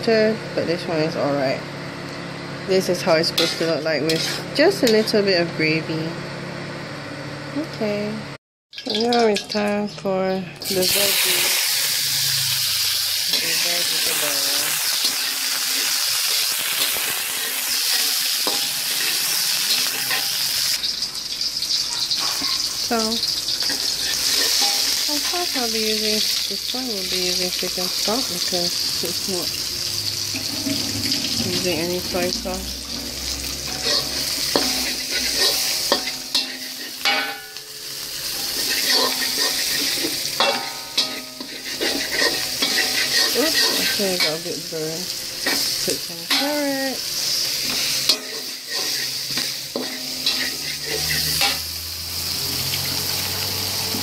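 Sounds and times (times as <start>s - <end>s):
food sizzling in oil: 2.7s - 5.4s, 8.7s - 54.0s
spatula scraping pan: 3.0s - 5.2s, 13.3s - 21.0s, 21.8s - 26.0s, 30.2s - 37.6s, 38.3s - 44.6s, 47.6s - 51.7s
spatula clinking against pan: 33.7s - 37.6s, 40.4s - 44.4s.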